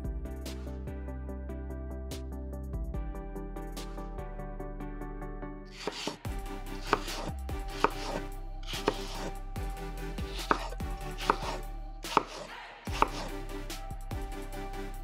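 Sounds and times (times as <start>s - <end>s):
knife cutting apple: 5.7s - 9.4s, 10.2s - 13.4s
knife knocking on cutting board: 5.8s - 6.2s, 10.4s - 10.7s.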